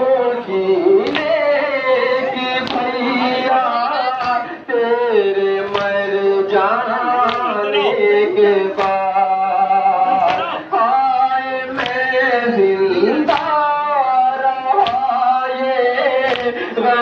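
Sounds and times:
men chanting a lament: 0:00.0 - 0:17.0
unison chest-beating slaps: 0:01.0 - 0:04.5, 0:05.3 - 0:07.6, 0:08.7 - 0:09.4, 0:10.1 - 0:10.6, 0:11.7 - 0:16.6.

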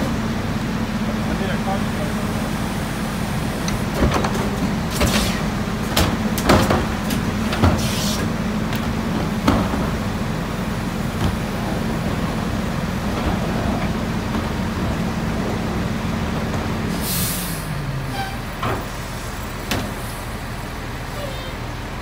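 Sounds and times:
garbage truck engine humming: 0:00.0 - 0:22.0
trash cart knocks and bangs: 0:04.0 - 0:07.9, 0:08.8 - 0:10.1.

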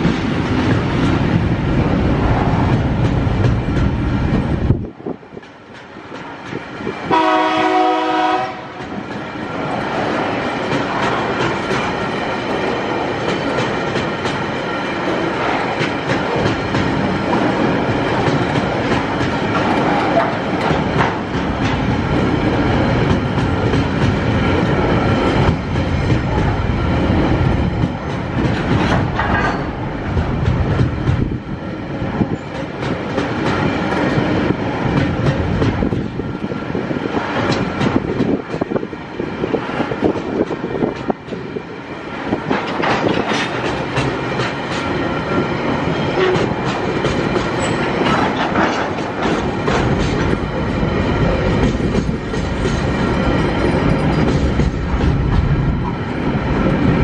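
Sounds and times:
freight train rolling past: 0:00.0 - 0:57.0
wheels clicking over rail joints: 0:08.8 - 0:26.6, 0:27.8 - 0:31.3, 0:37.2 - 0:38.9, 0:42.3 - 0:55.8.

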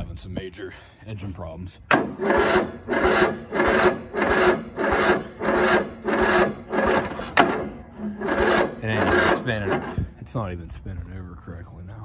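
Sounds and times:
mower engine cranking: 0:01.8 - 0:10.2.

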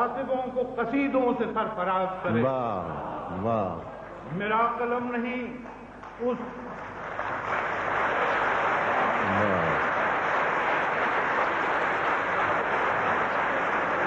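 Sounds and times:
man calling out: 0:02.3 - 0:03.8, 0:09.2 - 0:09.8
audience applauding: 0:05.6 - 0:14.0.

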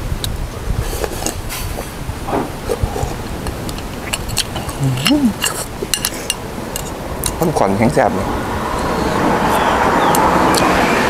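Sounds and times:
steady low rumble: 0:00.0 - 0:09.5
sipping and swallowing soup: 0:00.2 - 0:06.9
person humming mm: 0:04.8 - 0:05.5.

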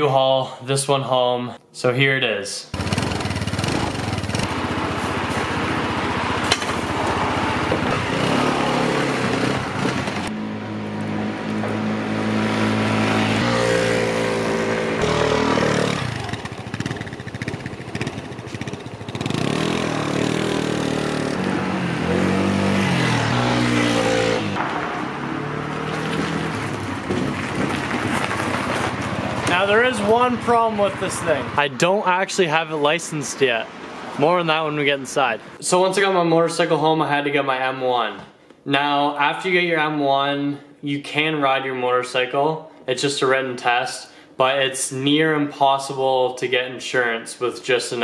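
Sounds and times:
scooter engine revving: 0:02.7 - 0:31.6.

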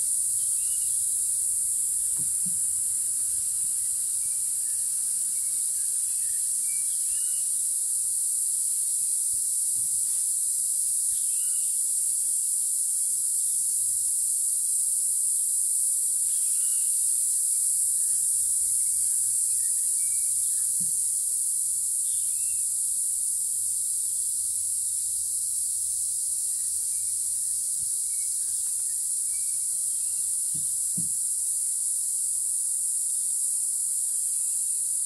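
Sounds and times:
high-pitched insect chorus: 0:00.0 - 0:35.0
faint chirping bird calls: 0:00.4 - 0:01.2.

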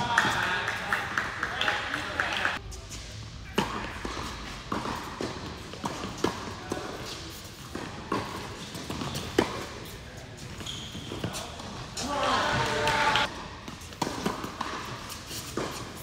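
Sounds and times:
racquet striking ball: 0:03.6 - 0:07.1, 0:14.0 - 0:15.9.

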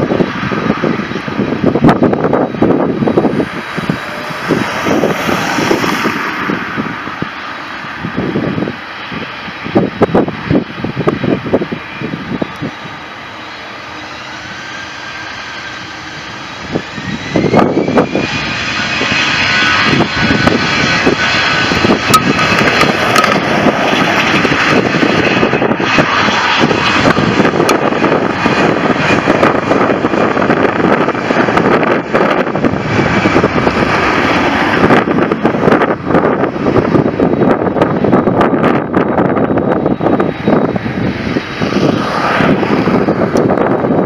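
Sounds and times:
jet engines spooling up: 0:00.0 - 0:44.0.

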